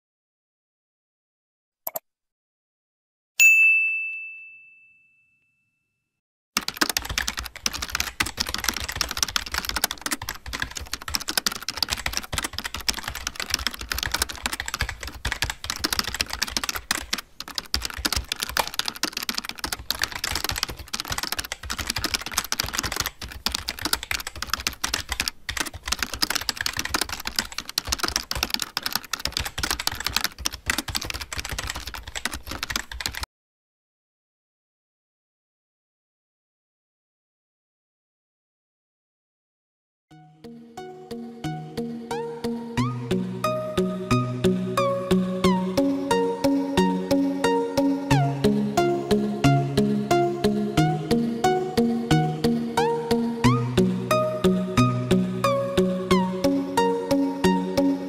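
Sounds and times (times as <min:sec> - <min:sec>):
notification bell ding: 0:03.4 - 0:05.7
rapid typing on keyboard: 0:06.6 - 0:33.3.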